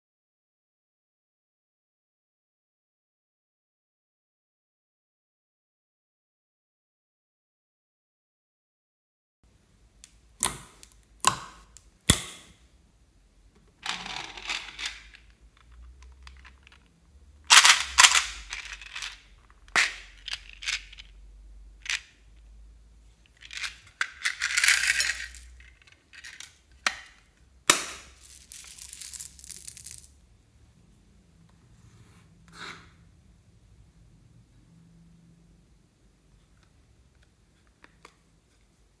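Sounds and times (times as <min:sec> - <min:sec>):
plastic beads rattling and pouring: 0:13.8 - 0:16.9, 0:17.5 - 0:21.2, 0:23.3 - 0:27.2, 0:28.0 - 0:30.2.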